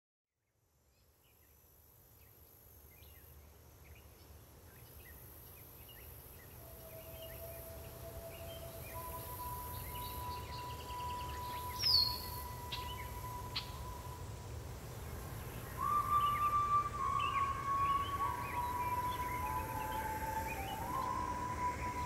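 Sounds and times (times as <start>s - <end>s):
small birds chirping: 3.0s - 14.2s, 15.0s - 22.0s
flute playing long notes: 6.4s - 22.0s.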